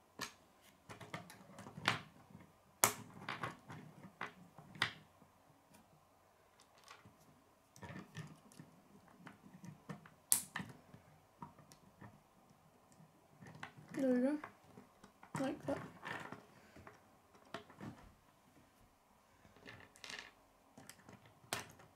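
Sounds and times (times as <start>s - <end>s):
plastic pieces snapping together: 2.8s - 3.6s, 9.9s - 10.8s.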